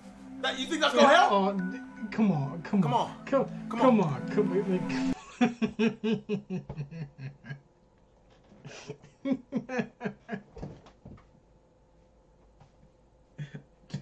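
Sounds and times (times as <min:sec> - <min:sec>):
man laughing hard: 0:05.2 - 0:07.6, 0:08.7 - 0:10.6.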